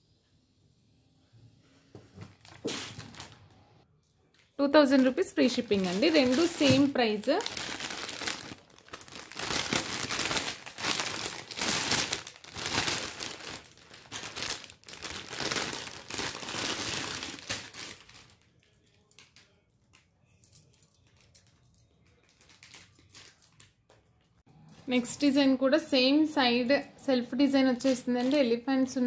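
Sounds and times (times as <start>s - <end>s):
plastic bag crinkling: 2.2s - 3.6s, 4.6s - 19.4s, 21.0s - 23.7s, 27.8s - 28.6s.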